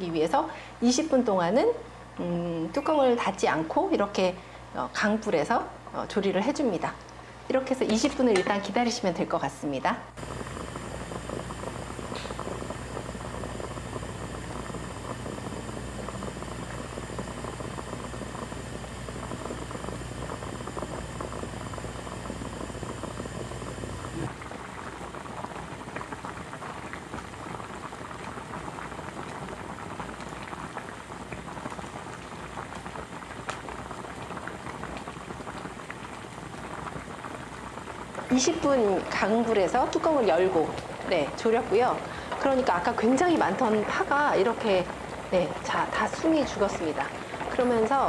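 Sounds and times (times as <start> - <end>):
low steady hum: 0.0 - 25.2
liquid boiling and bubbling: 0.0 - 48.0.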